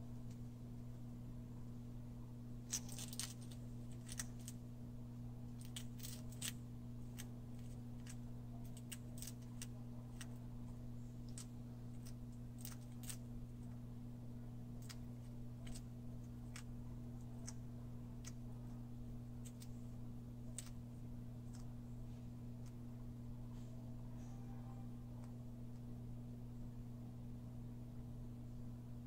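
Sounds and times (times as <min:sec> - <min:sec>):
low hum: 0:00.0 - 0:29.0
lizard crunching beetle shell: 0:02.7 - 0:04.6, 0:05.6 - 0:10.4, 0:11.3 - 0:13.2, 0:20.4 - 0:21.7.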